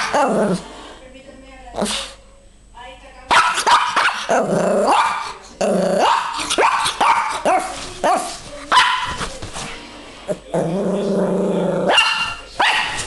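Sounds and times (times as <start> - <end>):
dog growling and barking: 0.0 - 0.7, 3.4 - 7.7, 10.5 - 13.0.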